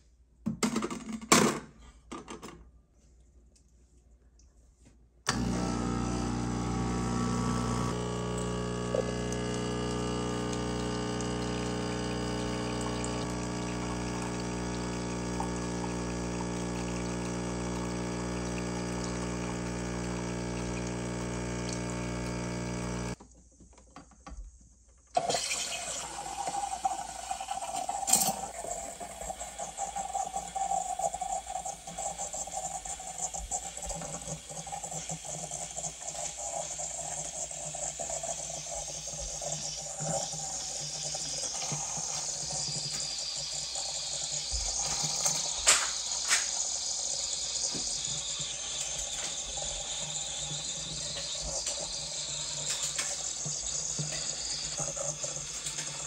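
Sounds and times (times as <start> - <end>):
espresso machine pump humming: 5.3 - 23.2, 25.2 - 56.0
steam wand hissing in milk: 25.2 - 56.0.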